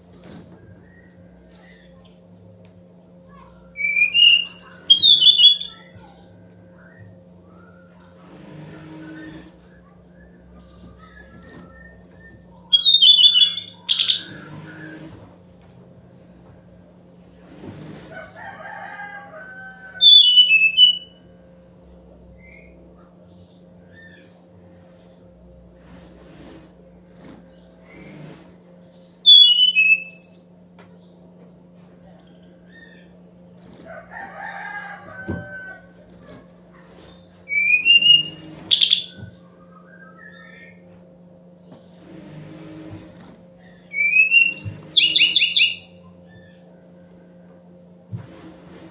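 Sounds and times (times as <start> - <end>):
steady low hum: 0.0 - 48.9
low drawn-out bird call: 3.6 - 6.0, 6.7 - 15.2, 19.3 - 21.2
bird whistled song: 3.7 - 6.0, 10.1 - 15.0, 19.5 - 21.2, 28.7 - 30.7, 37.5 - 40.8, 43.9 - 45.9.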